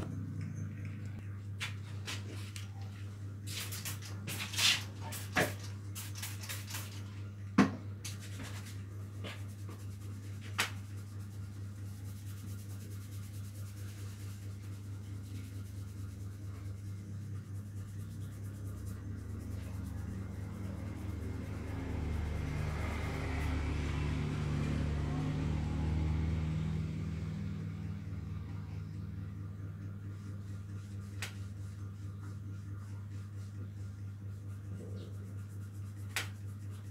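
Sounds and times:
steady low hum: 0:00.0 - 0:36.9
fingers rubbing through hair: 0:08.1 - 0:23.6, 0:30.0 - 0:36.9.

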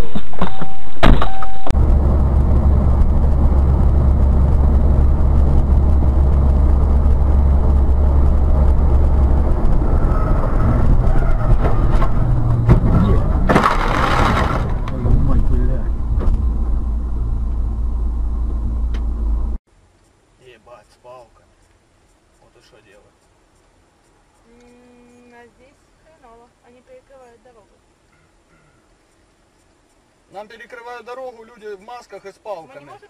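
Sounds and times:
loud distorted sound: 0:00.0 - 0:18.8
low drone: 0:00.0 - 0:19.6
engine and road rumble: 0:00.0 - 0:33.0.

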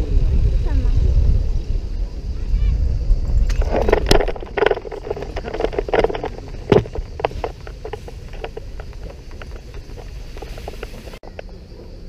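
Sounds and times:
wind rumble on microphone: 0:00.0 - 0:12.0
harness clicks and rustles: 0:03.4 - 0:11.2.

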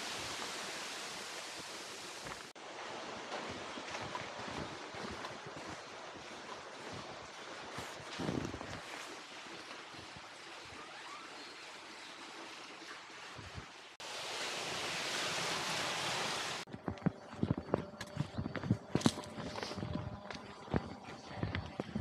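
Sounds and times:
waterfall rushing: 0:00.0 - 0:02.5, 0:14.0 - 0:16.7
footsteps: 0:02.2 - 0:10.2, 0:16.6 - 0:22.0.

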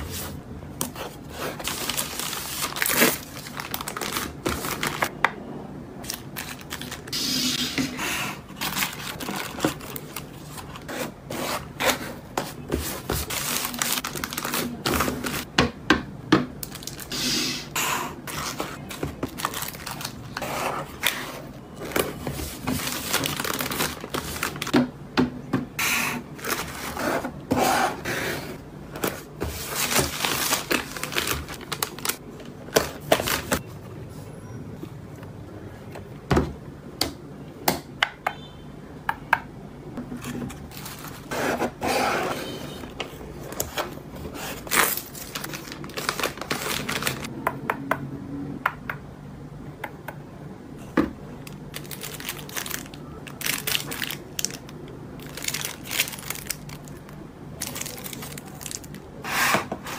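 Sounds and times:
plastic mailer rustling: 0:01.4 - 0:05.1, 0:08.1 - 0:11.0, 0:11.6 - 0:15.5, 0:18.3 - 0:24.7, 0:26.0 - 0:33.6, 0:40.1 - 0:47.3.

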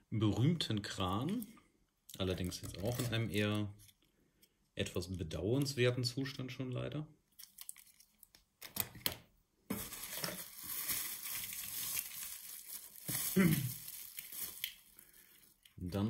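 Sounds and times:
bubble-wrap rustling and crinkling: 0:09.7 - 0:16.0.

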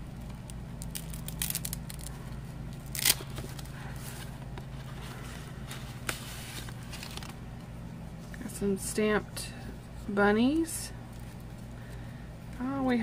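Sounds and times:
steady low hum: 0:00.0 - 0:13.0
sharp paper crackle: 0:00.1 - 0:07.5
paper rustling and crinkling: 0:00.2 - 0:07.7.

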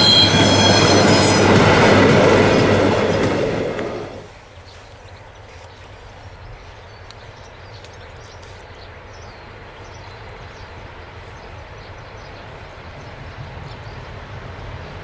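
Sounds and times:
diesel locomotive rumble: 0:00.0 - 0:04.4
small birds chirping: 0:04.4 - 0:14.2.

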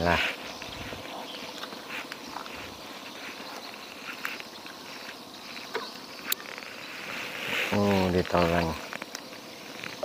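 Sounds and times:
insects chirping: 0:00.0 - 0:10.0
faint ticks: 0:01.5 - 0:06.8, 0:07.7 - 0:10.0.

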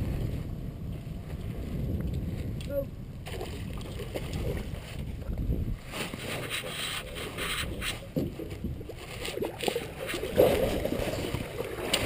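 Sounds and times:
water splashing against boat: 0:00.0 - 0:12.0.

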